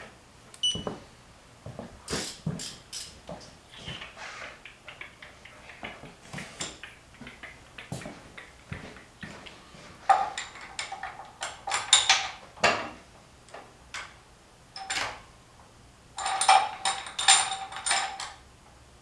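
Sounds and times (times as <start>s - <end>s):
ratchet wrench clicking: 2.2s - 3.2s.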